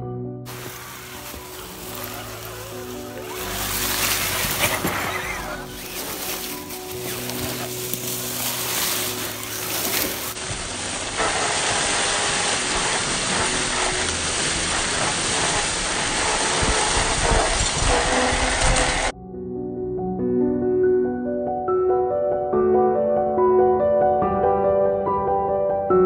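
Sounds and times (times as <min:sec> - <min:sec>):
leaves rustling: 0:00.5 - 0:19.1.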